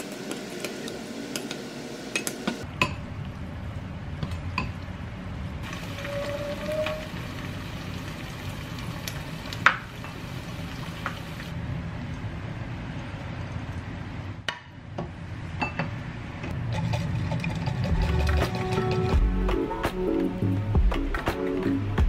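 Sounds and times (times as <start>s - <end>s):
egg sizzling in a pan: 0.0s - 2.6s, 5.6s - 11.5s
background music: 17.7s - 22.0s.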